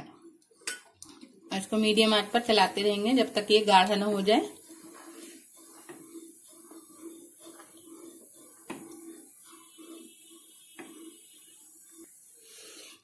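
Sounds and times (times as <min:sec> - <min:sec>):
spatula scraping saucepan: 0:00.0 - 0:13.0
spatula knocking pan: 0:08.6 - 0:09.0.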